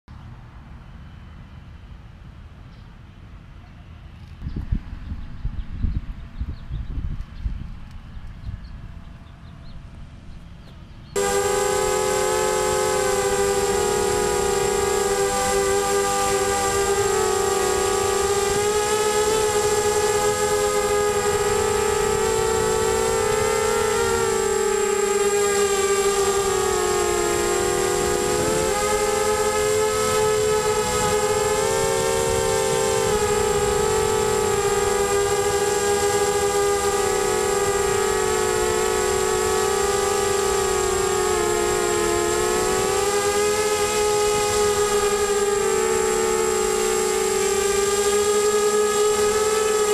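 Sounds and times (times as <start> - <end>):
wind rumble on microphone: 4.1 - 49.9
quadcopter motors whining: 10.4 - 49.9.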